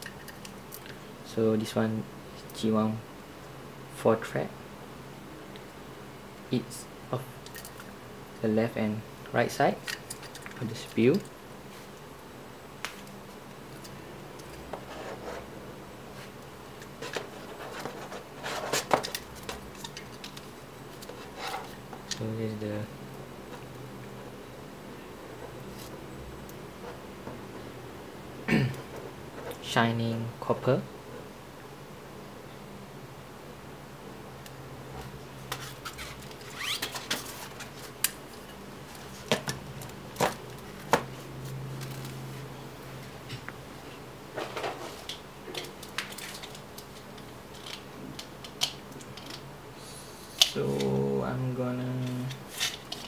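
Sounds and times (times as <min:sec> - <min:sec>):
plastic and metal rubbing: 0:16.9 - 0:21.8, 0:35.5 - 0:38.0.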